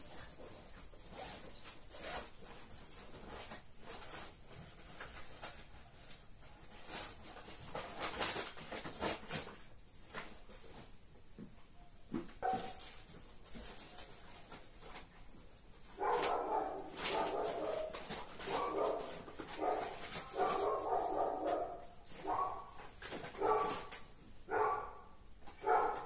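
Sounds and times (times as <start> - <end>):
fabric rustling: 12.4 - 26.0.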